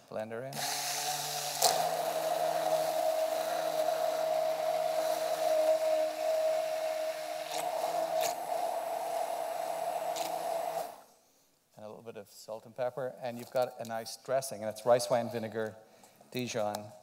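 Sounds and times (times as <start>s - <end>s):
immersion blender motor whine: 0.6s - 11.1s.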